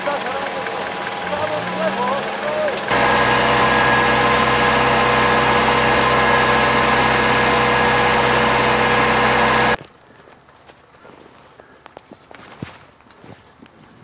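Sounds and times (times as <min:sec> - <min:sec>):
vehicle engine idling: 0:00.0 - 0:09.8.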